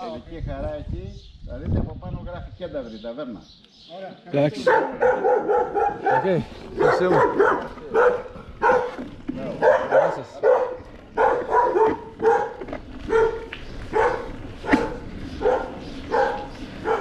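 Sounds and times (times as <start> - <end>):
dog barking: 4.6 - 17.0.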